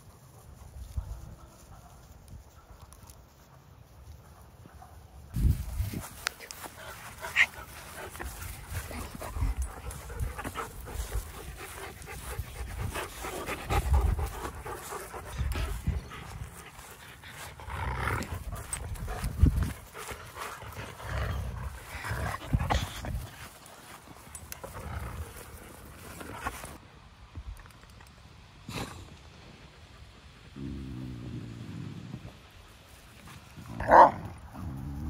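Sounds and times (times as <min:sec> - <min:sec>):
dogs panting: 0:05.9 - 0:26.8.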